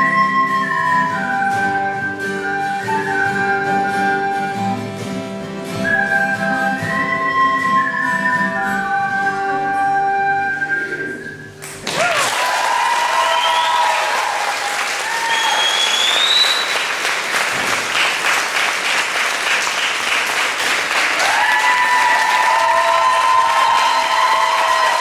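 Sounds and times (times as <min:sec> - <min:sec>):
acoustic band music: 0:00.0 - 0:12.1
audience clapping: 0:11.6 - 0:25.0.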